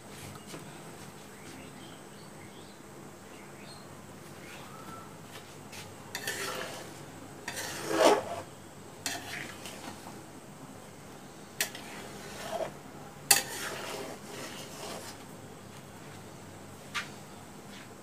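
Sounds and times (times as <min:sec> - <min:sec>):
metal spatula scraping a pan: 0:06.1 - 0:10.1, 0:11.6 - 0:15.2.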